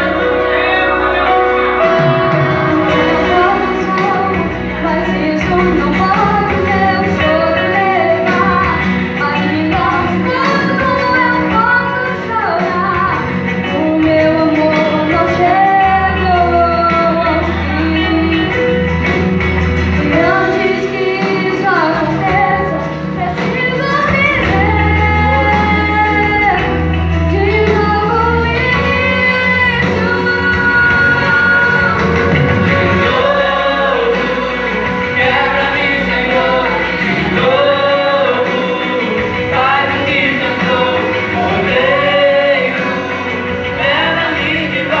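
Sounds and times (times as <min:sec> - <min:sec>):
lead singer holding long notes: 0:00.0 - 0:12.5
backing music: 0:00.0 - 0:45.0
instrumental accompaniment: 0:00.0 - 0:45.0
women singing gospel: 0:02.6 - 0:18.7, 0:20.0 - 0:45.0.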